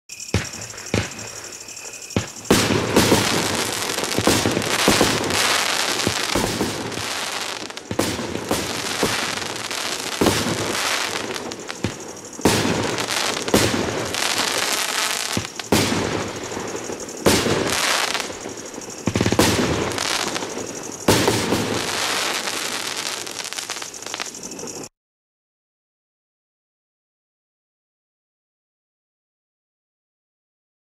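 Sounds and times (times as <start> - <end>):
fireworks bangs and crackling: 0.1 - 24.9.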